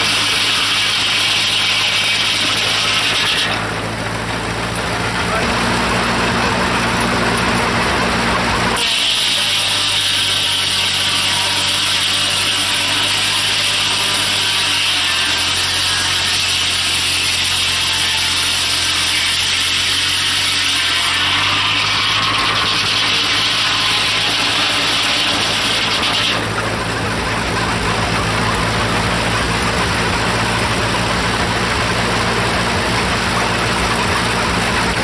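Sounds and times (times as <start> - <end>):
tractor engine running: 0.0 - 8.8, 21.6 - 35.0
circular saw ripping through a log: 0.0 - 35.0.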